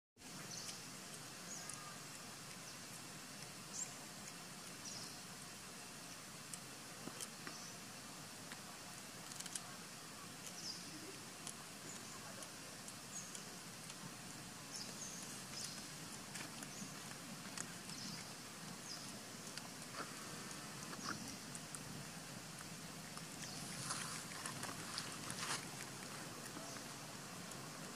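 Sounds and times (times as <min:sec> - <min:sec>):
steady hiss: 0:00.2 - 0:27.9.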